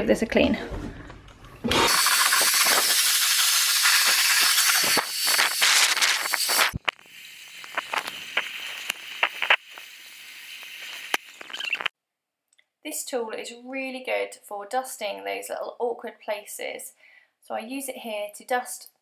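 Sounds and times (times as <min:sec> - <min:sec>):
vacuum cleaner running: 0:01.6 - 0:06.7
grit ticking up vacuum tube: 0:01.9 - 0:11.9.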